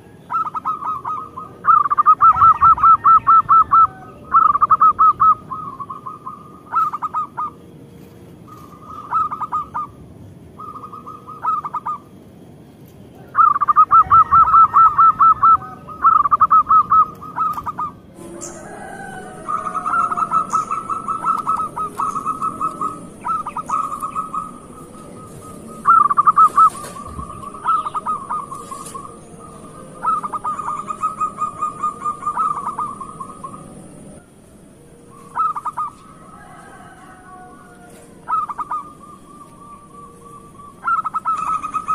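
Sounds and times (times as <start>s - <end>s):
dove cooing: 0.0s - 12.3s, 13.2s - 41.9s.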